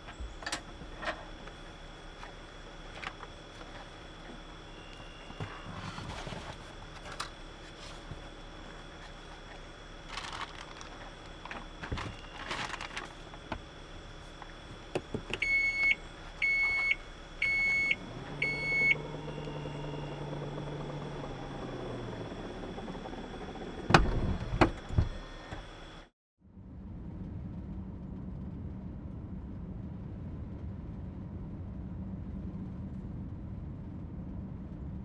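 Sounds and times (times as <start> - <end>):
liftgate motor hum: 0.0 - 26.1
high warning beeps: 15.3 - 23.5.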